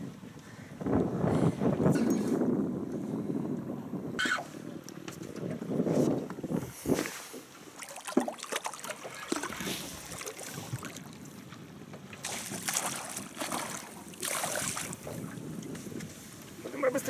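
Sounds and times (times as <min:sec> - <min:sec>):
fish splashing at water surface: 0:12.2 - 0:15.2.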